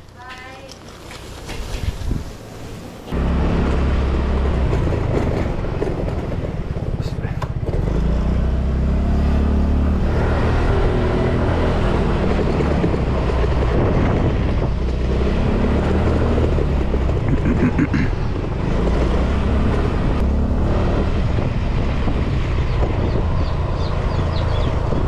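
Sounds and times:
wind buffeting microphone: 1.6 - 2.4, 10.5 - 25.0.

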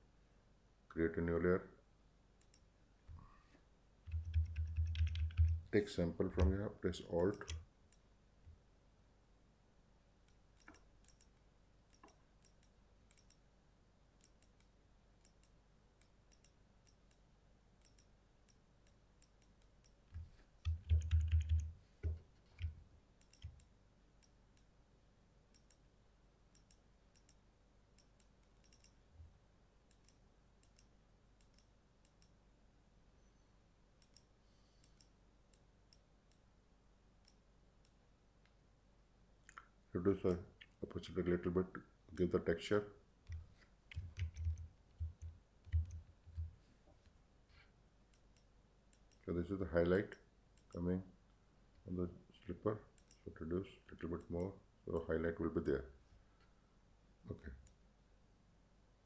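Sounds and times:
computer mouse clicks: 2.4 - 2.7, 4.1 - 5.7, 6.4 - 8.0, 10.2 - 13.4, 14.2 - 17.2, 17.8 - 24.7, 25.5 - 25.8, 26.5 - 27.4, 28.0 - 29.0, 29.9 - 32.4, 34.0 - 36.4, 43.3 - 46.5, 48.1 - 49.2, 53.0 - 53.2
keyboard clicks: 4.1 - 5.7, 6.4 - 7.6, 19.2 - 21.7, 22.5 - 24.7, 28.0 - 29.0, 43.3 - 46.5.

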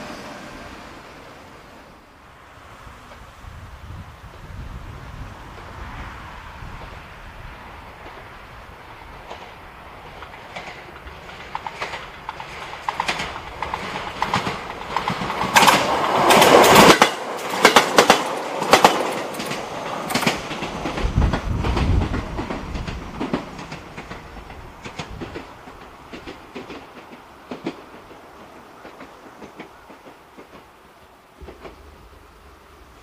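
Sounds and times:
train passing: 0.0 - 33.0
train wheels clicking on rail joints: 6.6 - 33.0.

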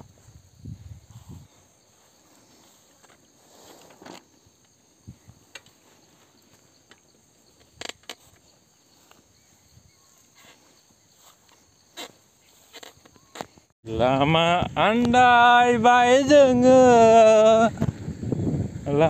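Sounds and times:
bike clicks and knocks: 5.5 - 5.8, 6.8 - 9.2.

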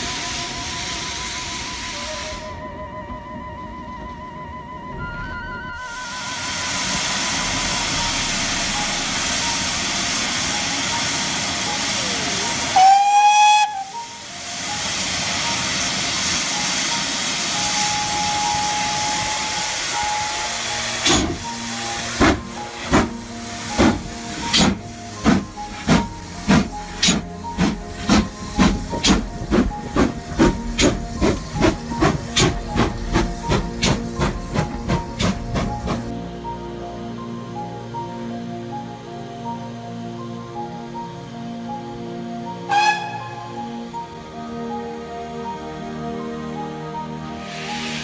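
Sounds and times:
steam hissing: 0.0 - 2.8, 5.8 - 36.1, 47.3 - 48.0
steam whistle blast: 0.0 - 9.6, 12.7 - 14.4, 16.2 - 29.2, 42.6 - 44.0
steam engine exhaust beats: 3.9 - 36.1.

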